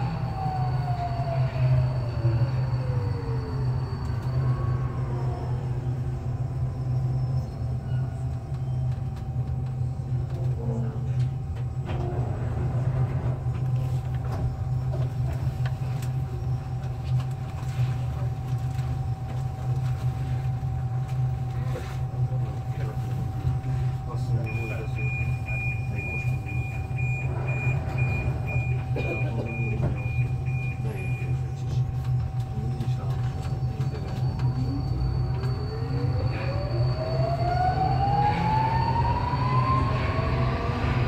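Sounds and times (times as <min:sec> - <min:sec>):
train motor whine: 0:00.0 - 0:09.8, 0:23.8 - 0:41.0
train wheels rumbling on rails: 0:00.0 - 0:41.0.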